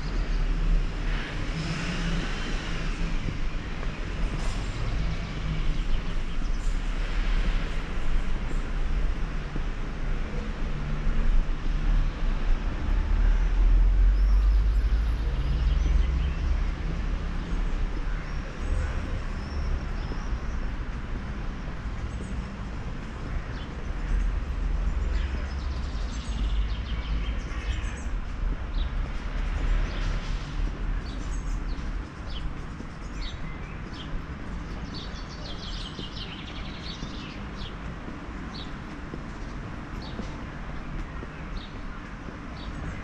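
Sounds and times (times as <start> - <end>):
birds chirping: 17.3 - 43.0.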